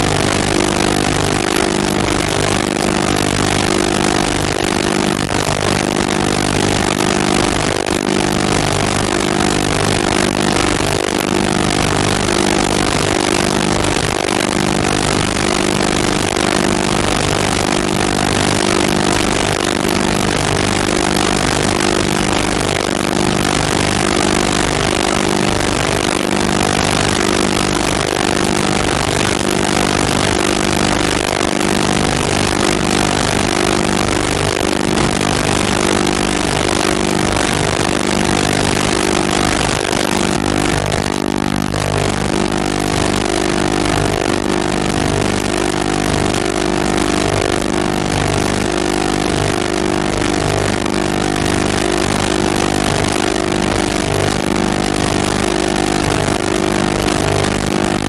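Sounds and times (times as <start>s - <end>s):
mechanical drone with hiss: 0.0s - 41.0s.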